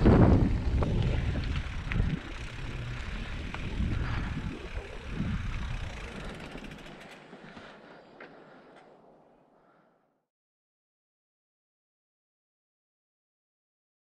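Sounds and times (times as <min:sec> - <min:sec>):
wind rumbling on microphone: 0:00.0 - 0:07.0
bike clicks and rattles: 0:00.0 - 0:09.2
bike tyres rolling on dirt: 0:00.0 - 0:09.9.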